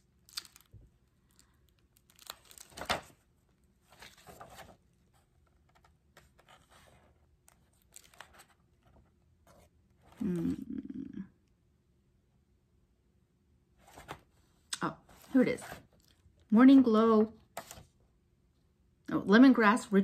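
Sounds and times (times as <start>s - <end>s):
paper packaging rustling and tearing: 0.0s - 3.2s, 3.8s - 4.9s, 5.6s - 8.6s.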